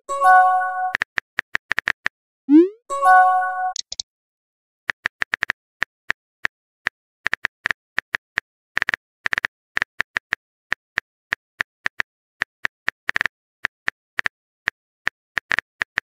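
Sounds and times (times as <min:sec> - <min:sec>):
keyboard key clicks: 0:03.7 - 0:04.0.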